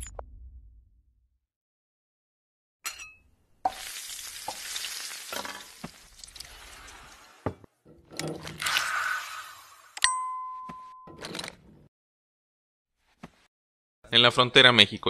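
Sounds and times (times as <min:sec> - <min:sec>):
waffle batter sizzling: 0:03.7 - 0:07.5.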